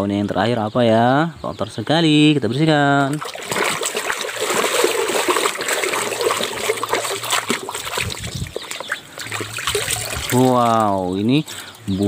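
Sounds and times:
water sloshing and splashing: 2.8 - 11.3.

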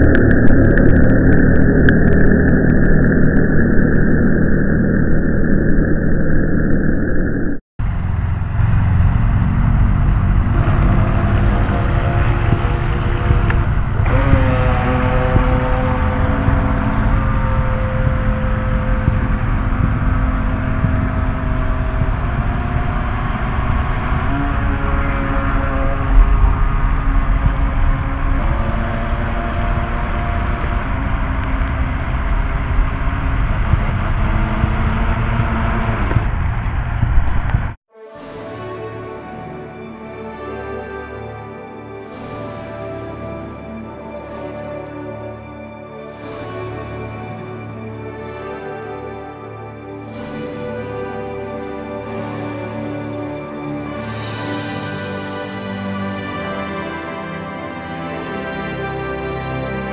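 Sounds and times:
loud low rumble: 0.0 - 57.2
electric motor whine: 7.9 - 36.9.

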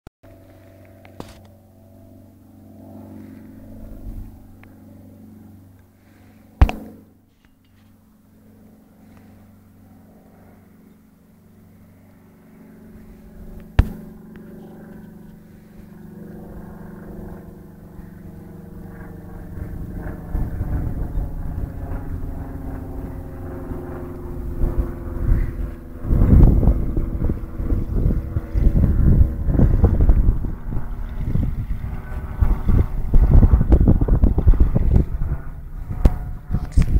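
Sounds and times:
light aircraft engine drone: 0.2 - 36.9.

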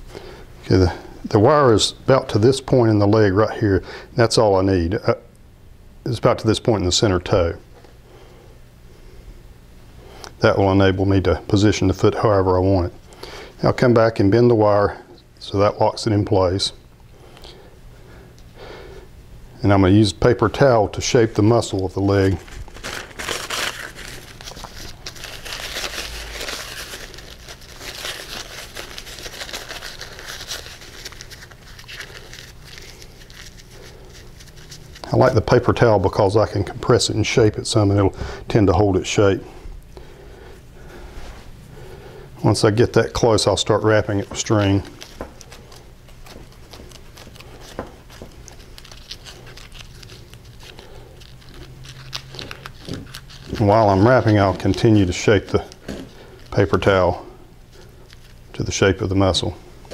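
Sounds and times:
steady low hum: 0.0 - 59.9
paper towel crumpling: 20.3 - 37.8, 42.5 - 59.5.

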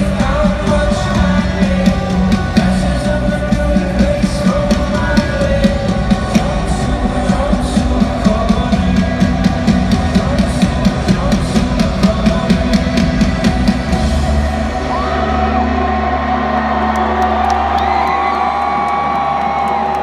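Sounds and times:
fast drum beat: 0.0 - 14.8
live rock band playing: 0.0 - 19.0
crowd yelling: 14.0 - 20.0.

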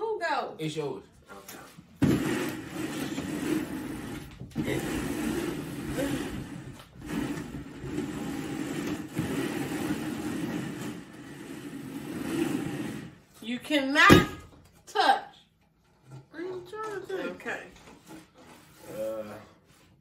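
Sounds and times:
plastic bowls scraping on table: 1.8 - 13.3.

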